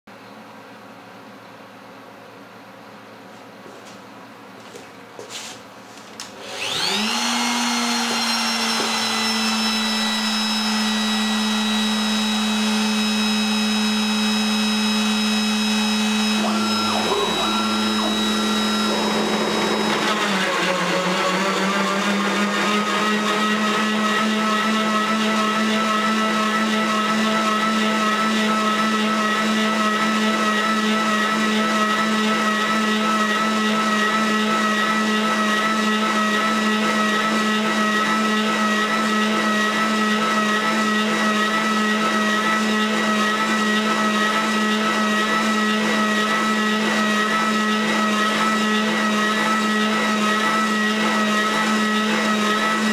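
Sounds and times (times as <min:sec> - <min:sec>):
spindle motor high whine: 0:06.3 - 0:22.7
end mill cutting metal: 0:14.3 - 0:22.2.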